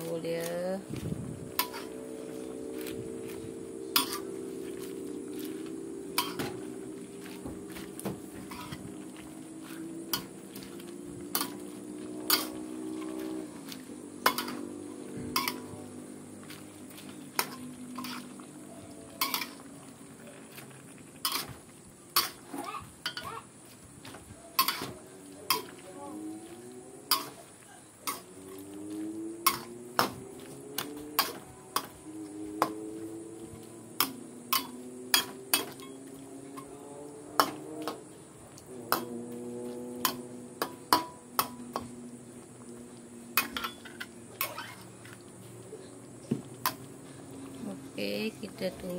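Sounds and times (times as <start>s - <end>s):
ladle clinking against wok: 1.5s - 2.0s, 3.9s - 4.4s, 6.2s - 6.6s, 12.3s - 13.4s, 14.2s - 14.7s, 15.3s - 15.7s, 19.1s - 19.6s, 21.2s - 21.6s, 24.5s - 25.8s, 27.0s - 27.4s, 28.0s - 28.3s, 29.4s - 30.1s, 34.0s - 36.7s, 40.0s - 42.0s
metal spatula scraping a wok: 1.5s - 6.6s, 8.3s - 15.8s, 17.1s - 18.4s, 19.1s - 19.6s, 21.2s - 23.3s, 24.6s - 25.8s, 27.0s - 28.4s, 29.4s - 29.8s, 34.0s - 36.0s, 43.4s - 44.9s.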